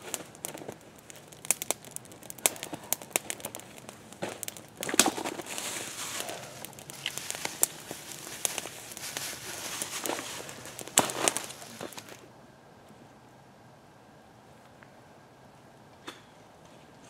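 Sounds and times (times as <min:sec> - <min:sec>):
campfire crackling and popping: 0:00.0 - 0:12.3
handling rustle: 0:03.3 - 0:12.2.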